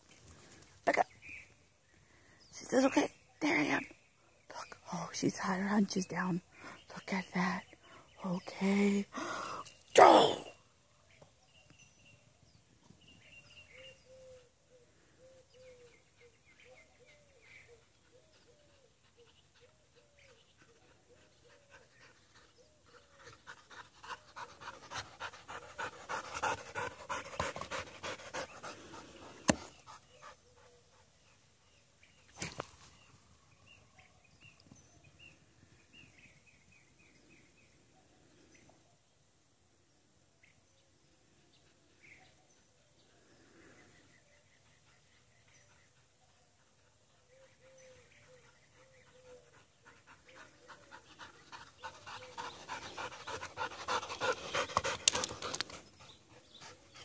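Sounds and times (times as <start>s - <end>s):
dog panting: 17.8s - 31.1s, 48.2s - 57.0s.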